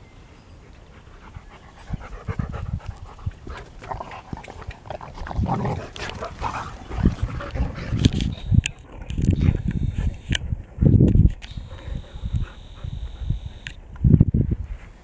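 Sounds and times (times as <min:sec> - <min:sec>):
dogs panting and scuffling: 0:00.7 - 0:09.6.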